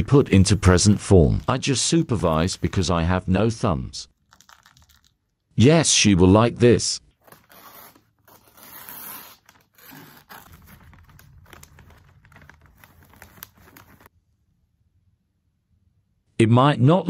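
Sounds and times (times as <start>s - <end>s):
paper rustling and crinkling: 0.0s - 2.9s, 4.2s - 5.2s, 7.2s - 14.1s.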